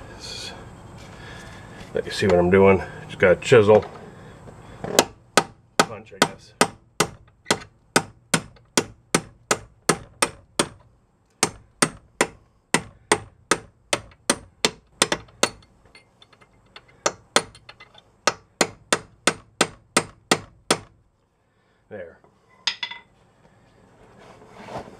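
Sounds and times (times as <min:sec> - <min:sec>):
hammer striking chisel on metal: 0:05.0 - 0:10.8, 0:11.4 - 0:16.1, 0:16.7 - 0:20.9, 0:22.7 - 0:23.1.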